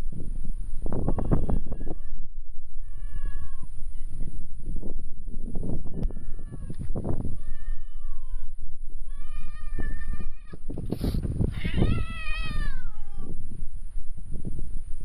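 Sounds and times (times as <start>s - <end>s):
cat meowing: 9.1s - 10.6s, 11.5s - 13.3s.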